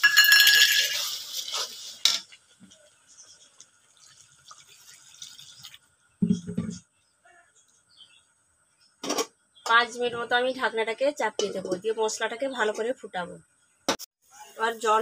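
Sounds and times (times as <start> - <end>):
spatula scraping metal pan: 0.2 - 2.4.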